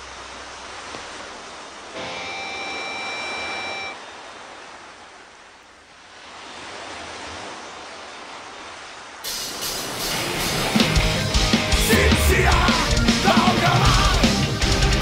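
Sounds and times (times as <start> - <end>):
held tone of several pitches: 2.0 - 4.0
concert crowd roar: 10.1 - 15.0.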